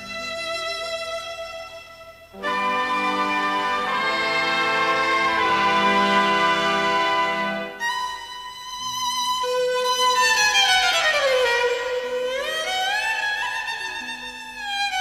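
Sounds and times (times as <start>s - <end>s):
soft held accompaniment: 0.0s - 15.0s
violin melody: 0.0s - 15.0s.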